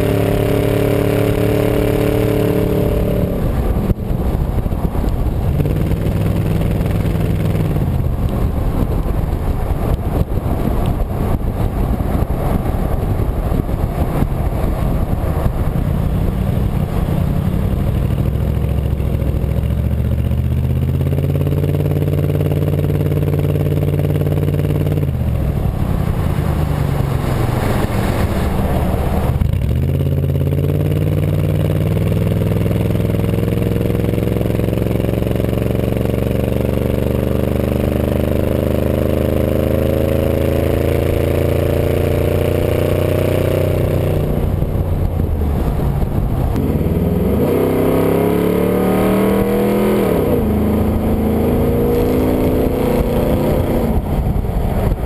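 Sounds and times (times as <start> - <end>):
truck engine accelerating: 0.0 - 55.0.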